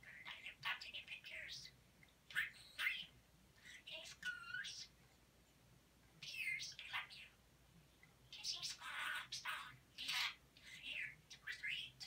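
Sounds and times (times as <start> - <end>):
budgerigar chattering: 8.4 - 10.4.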